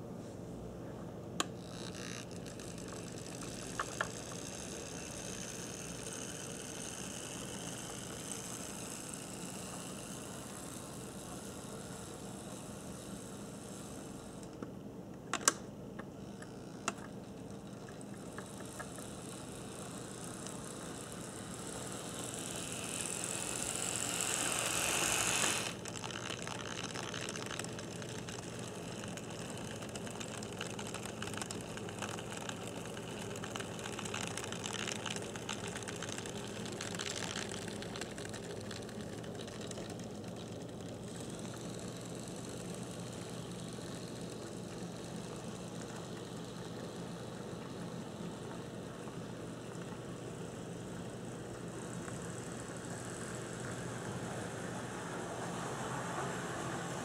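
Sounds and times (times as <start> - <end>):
model train motor whirring: 1.6 - 14.6, 17.8 - 48.5.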